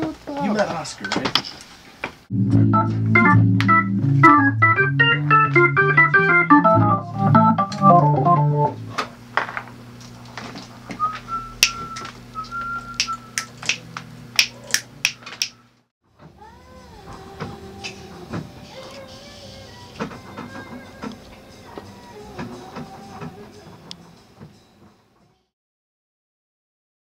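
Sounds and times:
electric organ playing: 2.3s - 9.2s, 10.8s - 14.0s.

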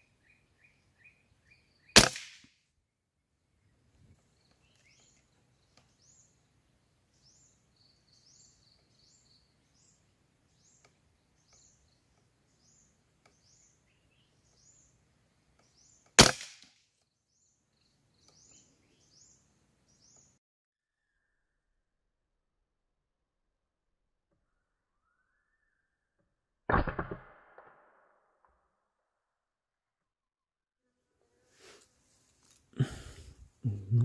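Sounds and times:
small birds chirping: 0.0s - 2.0s, 3.5s - 16.2s, 16.9s - 20.4s
rifle shot: 2.0s - 2.5s, 16.2s - 16.7s, 26.7s - 28.0s.

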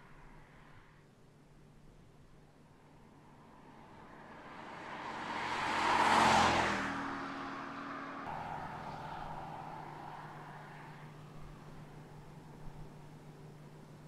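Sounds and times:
car driving past: 3.3s - 14.0s.

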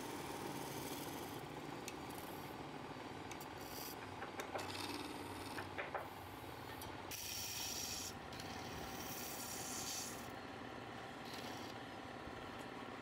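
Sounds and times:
wood lathe motor hum: 11.2s - 11.8s.

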